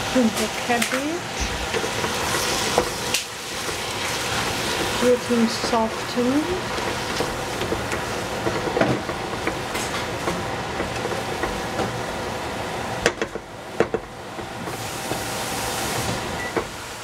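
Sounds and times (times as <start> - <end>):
vegetables sizzling in pan: 0.0 - 17.0
spatula scraping pan: 3.6 - 11.5.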